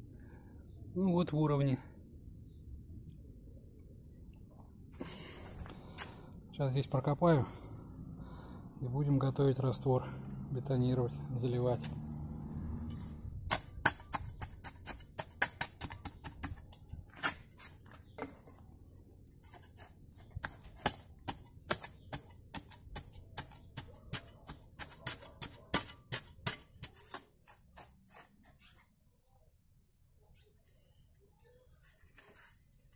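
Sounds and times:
metal shovel scraping stony soil: 11.5s - 12.1s, 12.8s - 18.5s, 19.4s - 28.8s, 31.8s - 32.9s.

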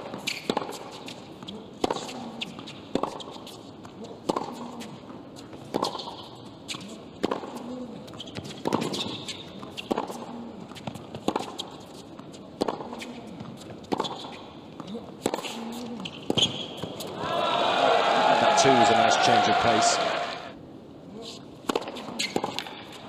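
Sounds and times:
tennis ball hit by racket: 0.1s - 1.2s, 4.2s - 5.0s, 5.7s - 7.7s, 8.3s - 12.0s, 12.6s - 14.3s, 15.2s - 17.2s, 21.6s - 23.0s.

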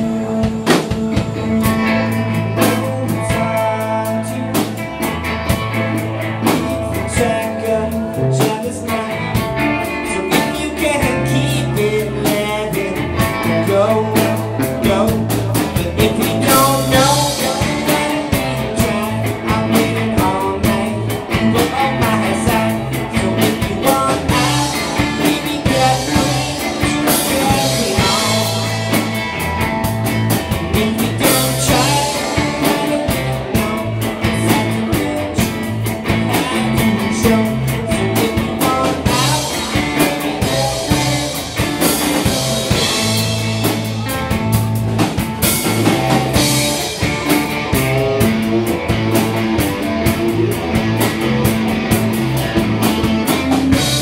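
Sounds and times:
rock band playing live: 0.0s - 54.0s.

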